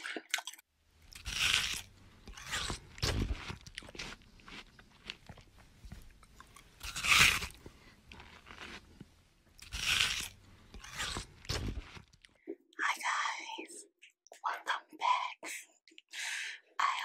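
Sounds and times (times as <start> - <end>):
crunching and chewing food: 0.3 - 12.4.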